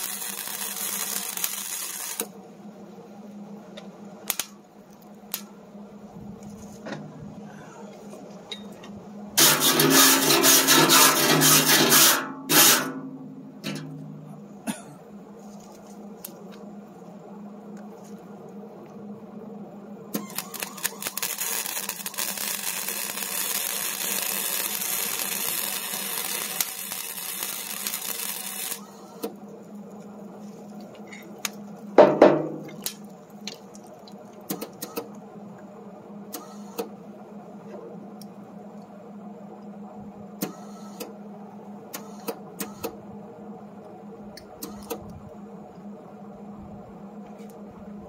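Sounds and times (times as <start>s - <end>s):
arc welding crackling hiss: 0.0s - 2.4s, 9.4s - 13.0s, 20.1s - 29.8s
steady low hum: 0.0s - 48.0s.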